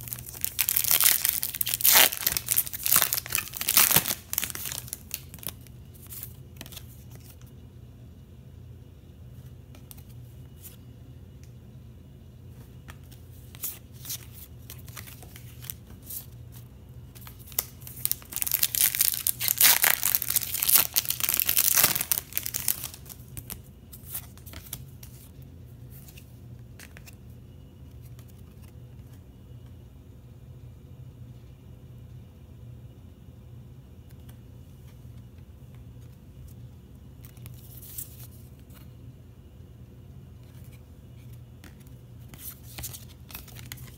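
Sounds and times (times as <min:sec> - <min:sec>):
foil wrapper tearing and crinkling: 0:00.0 - 0:05.6, 0:17.5 - 0:23.6
cards clicking and rustling: 0:00.0 - 0:07.4, 0:17.2 - 0:25.3, 0:40.4 - 0:43.9.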